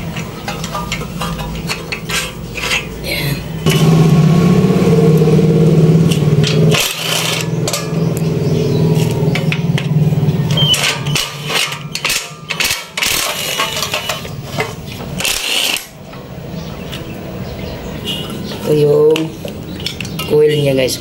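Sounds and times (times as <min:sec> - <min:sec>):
metal parts clanking: 0:00.0 - 0:03.9, 0:06.1 - 0:08.3, 0:09.0 - 0:16.3, 0:18.2 - 0:20.7
impact wrench buzzing: 0:03.6 - 0:16.0.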